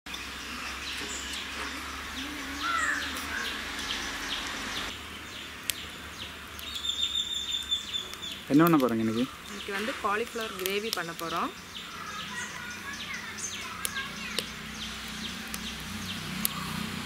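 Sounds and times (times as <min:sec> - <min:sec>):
birds chirping: 0:00.1 - 0:17.0
high steady bird note: 0:01.6 - 0:04.9.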